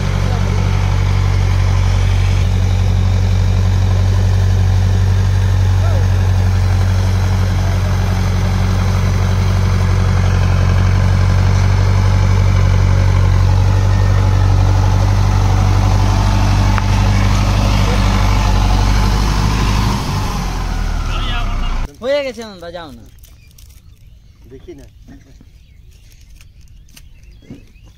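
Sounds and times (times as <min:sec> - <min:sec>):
rotavator churning mud: 0:00.0 - 0:21.9
tractor diesel engine under load: 0:00.0 - 0:22.3.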